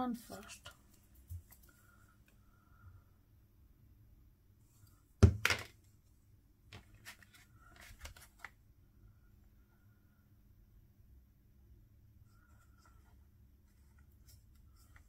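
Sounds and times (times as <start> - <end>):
paper rustling: 6.8 - 8.6.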